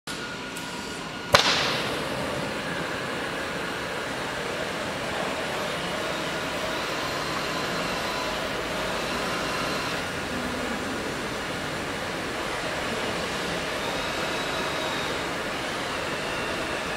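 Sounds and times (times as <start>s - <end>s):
torches lighting with a pop: 1.3s - 3.0s.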